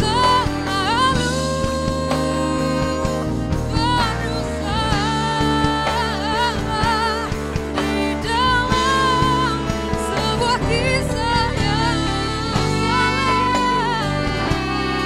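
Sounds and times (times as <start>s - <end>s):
acoustic pop band playing: 0.0s - 15.0s
saxophone: 0.0s - 15.0s.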